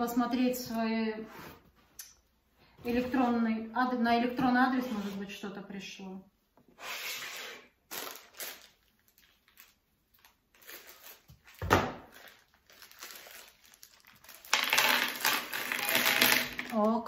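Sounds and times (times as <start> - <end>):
packaging rustling and crinkling: 7.9 - 16.9.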